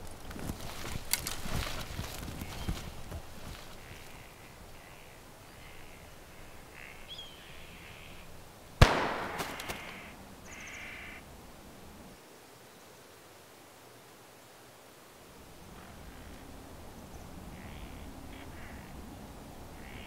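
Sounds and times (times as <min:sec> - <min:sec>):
crows cawing: 0:03.5 - 0:08.2, 0:09.2 - 0:11.2, 0:17.6 - 0:19.0, 0:19.8 - 0:20.0
echoing gunshot: 0:08.8 - 0:10.1.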